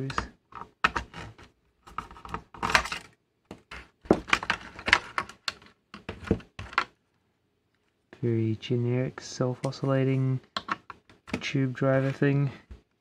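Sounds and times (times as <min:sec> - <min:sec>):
plastic and metal parts clicking: 0:00.1 - 0:07.0, 0:10.5 - 0:11.5.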